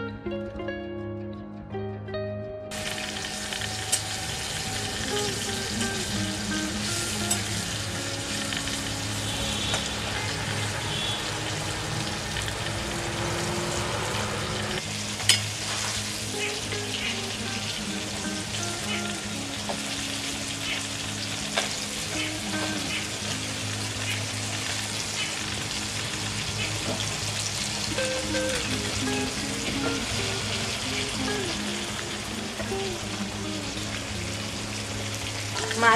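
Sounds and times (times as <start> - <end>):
soft background tune: 0.0 - 35.9
fish sizzling in hot oil: 2.7 - 35.9.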